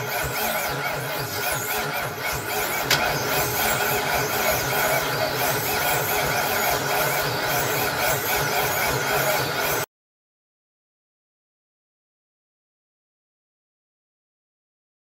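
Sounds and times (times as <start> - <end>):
click: 2.8 - 3.7.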